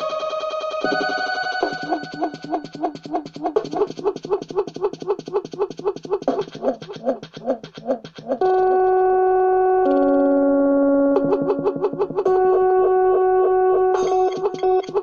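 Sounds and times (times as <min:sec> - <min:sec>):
repeated swooping synth notes: 0:00.0 - 0:15.0
held synth chord: 0:08.4 - 0:15.0.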